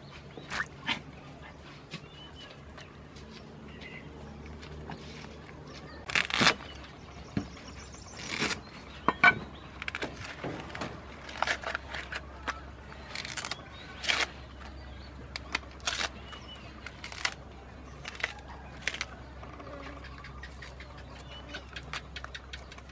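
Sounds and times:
corn husks tearing: 4.6 - 7.0, 8.1 - 8.8, 9.7 - 22.9.

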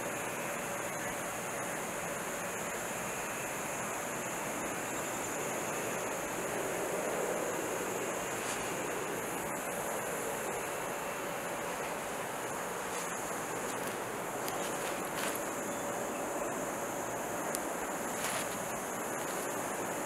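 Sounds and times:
outdoor rushing hiss: 0.0 - 20.0.

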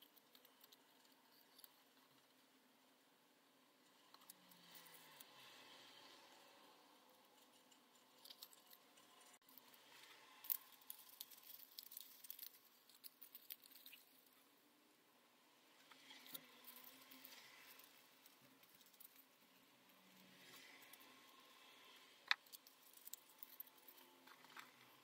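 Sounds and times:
small ticks: 10.4 - 14.4.

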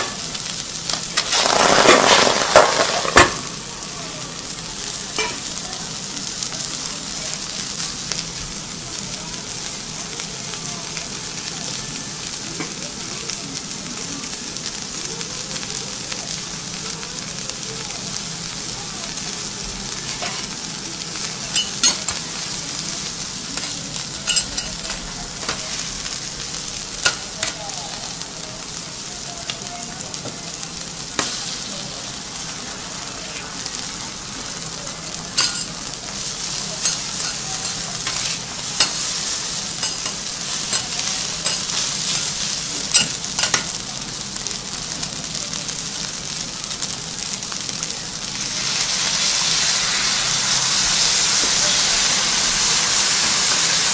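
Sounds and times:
food sizzling on griddle: 0.0 - 53.9
metal spatulas clicking on iron: 23.6 - 25.6, 35.4 - 35.7, 39.8 - 41.8, 42.9 - 43.7.

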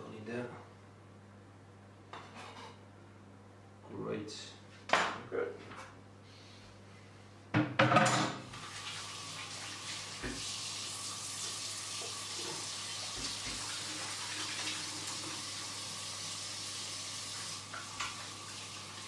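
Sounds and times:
tap running into sink: 10.2 - 10.6, 11.4 - 15.4, 17.4 - 18.3.

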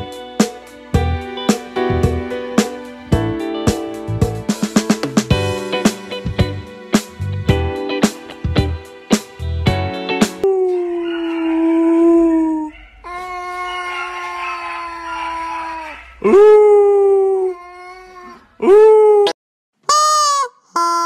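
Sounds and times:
cat yowling: 10.7 - 16.6.

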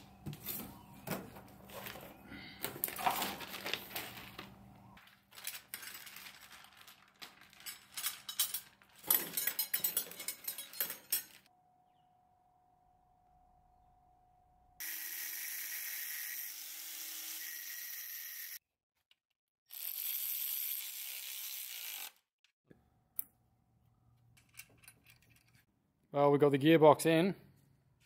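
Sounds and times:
metal tools clinking and clattering: 7.2 - 11.5, 24.4 - 25.7.

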